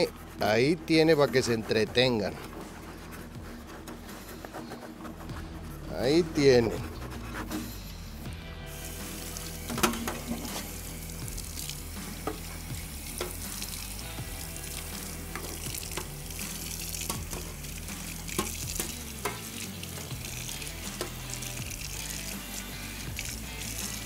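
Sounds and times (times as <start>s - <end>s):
tap water running into sink: 8.8s - 24.0s.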